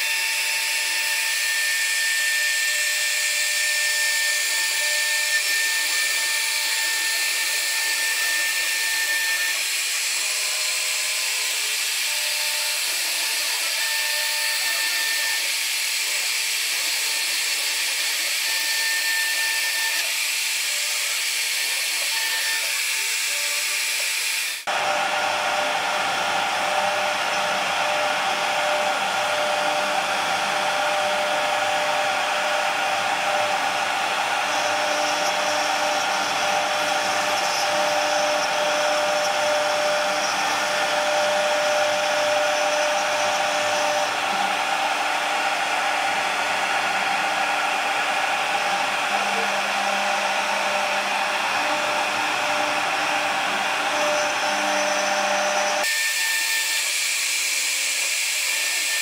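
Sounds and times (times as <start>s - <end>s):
cnc router spindle whine: 0.0s - 59.0s
fuller machine whine: 24.7s - 56.5s.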